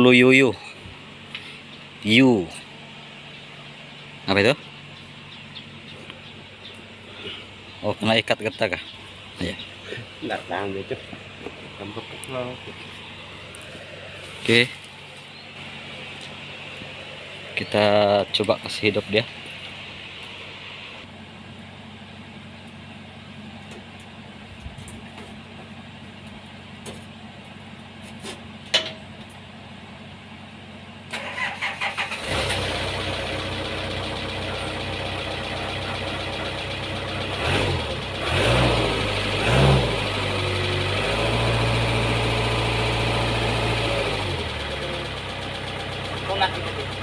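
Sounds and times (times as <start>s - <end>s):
diesel engine running and revving: 0.0s - 47.0s
engine starter cranking: 31.1s - 34.3s.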